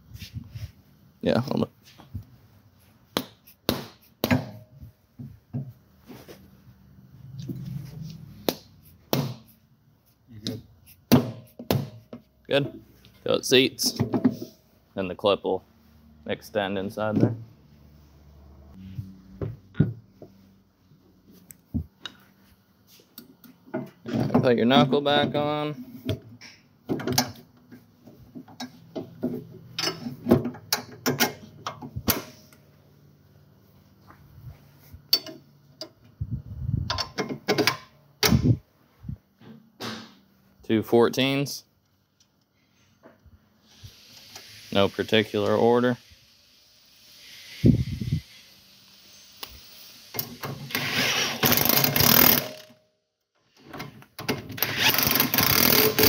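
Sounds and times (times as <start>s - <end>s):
impact wrench running bolts: 48.9s - 52.8s, 54.2s - 56.0s.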